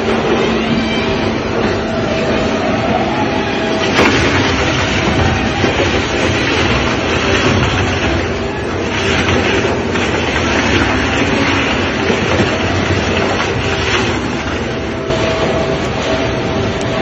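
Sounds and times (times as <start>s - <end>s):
tyre shredder grinding clatter: 3.6s - 16.4s.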